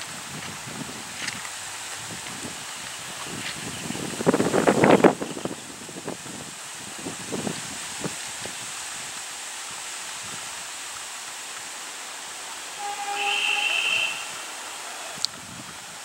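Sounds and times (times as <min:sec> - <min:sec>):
locomotive air horn blast: 0:12.6 - 0:15.3.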